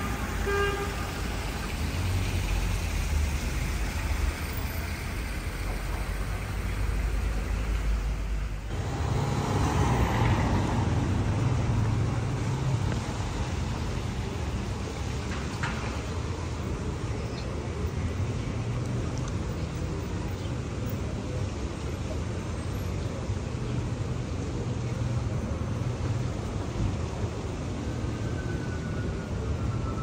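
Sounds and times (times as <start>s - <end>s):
street traffic hum: 0.0s - 30.0s
car horn toot: 0.4s - 1.1s.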